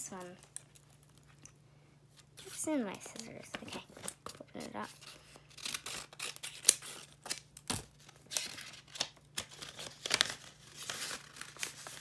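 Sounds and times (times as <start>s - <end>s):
paper crinkling: 2.4s - 12.0s
scissors snipping paper: 4.7s - 10.3s.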